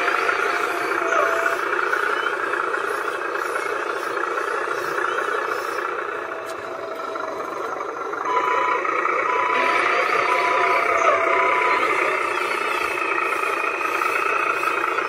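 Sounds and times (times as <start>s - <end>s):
model truck motor whirring: 0.0s - 15.0s
short beep: 8.2s - 11.8s.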